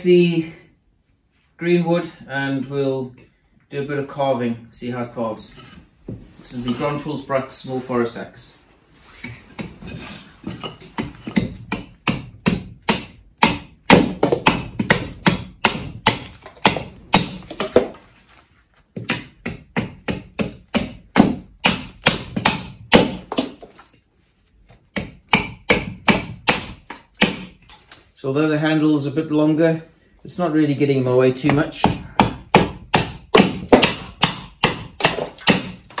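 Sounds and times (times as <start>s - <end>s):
axe chopping wood: 10.6s - 18.0s, 19.0s - 23.7s, 24.9s - 27.6s, 31.4s - 36.0s.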